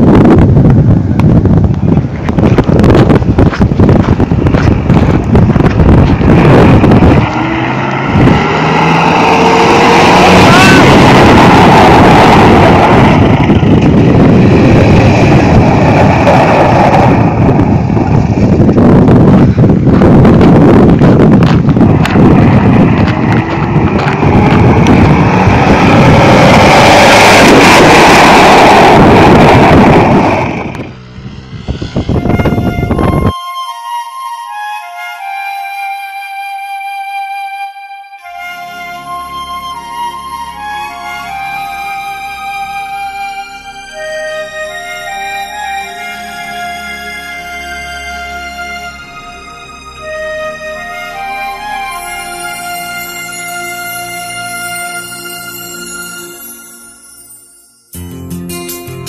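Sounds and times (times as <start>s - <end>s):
pickup truck engine: 0.0s - 33.3s, 38.2s - 56.8s
wind buffeting microphone: 0.0s - 33.4s
vehicle running noise: 0.0s - 59.0s
music tones: 31.6s - 59.0s.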